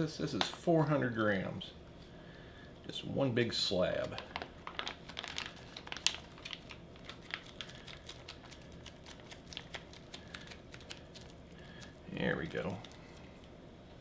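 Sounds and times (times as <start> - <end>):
foil pouch crinkling: 3.9 - 13.5.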